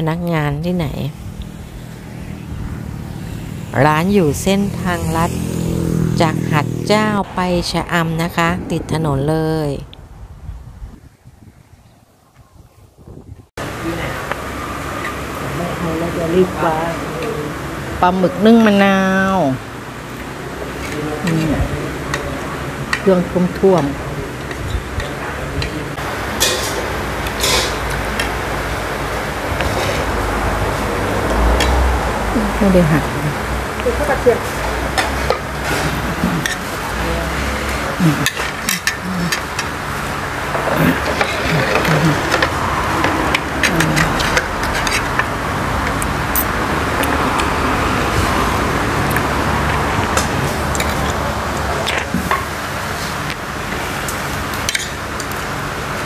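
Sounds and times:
road traffic: 0:00.0 - 0:56.0
restaurant background noise: 0:13.6 - 0:56.0
tableware clinking: 0:26.3 - 0:28.4.

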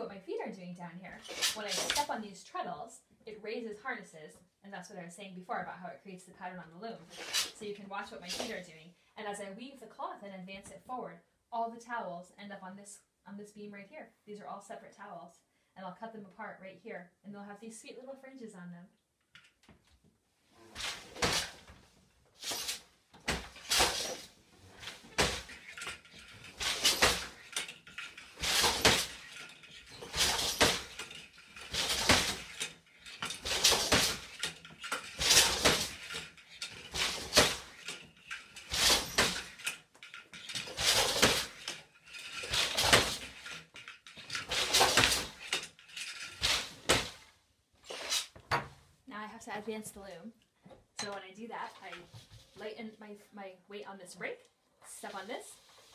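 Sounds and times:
floor loom knocking and clacking: 0:22.4 - 0:47.2.

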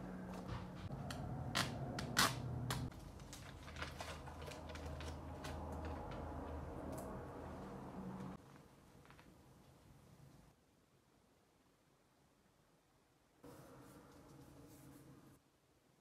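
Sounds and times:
glossy paper crinkling: 0:02.9 - 0:07.0.

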